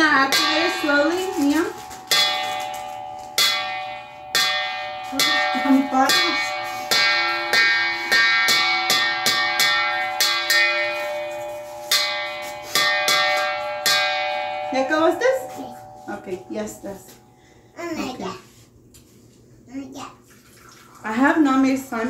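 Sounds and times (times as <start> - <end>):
chiming bell-like music: 1.8 - 17.7.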